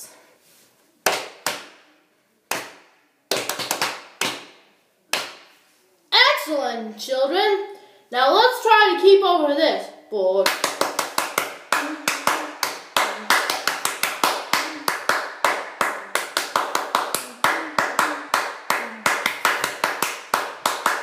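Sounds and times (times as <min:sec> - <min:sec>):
person clapping hands: 0:01.0 - 0:01.8, 0:02.5 - 0:05.6, 0:10.4 - 0:21.0.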